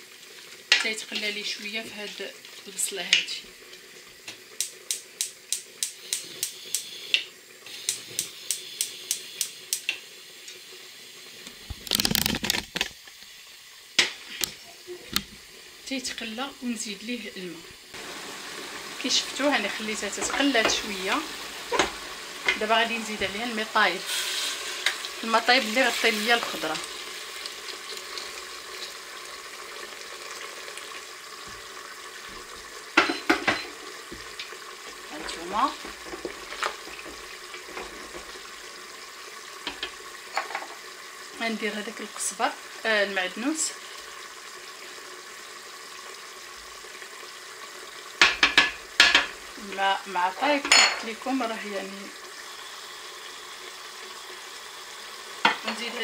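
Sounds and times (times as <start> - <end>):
meat and onions sizzling: 0.0 - 56.0
sharp frying pops: 4.2 - 10.6, 11.4 - 13.3, 13.9 - 15.5, 17.9 - 23.4, 24.1 - 29.0, 32.9 - 40.9, 48.1 - 49.9.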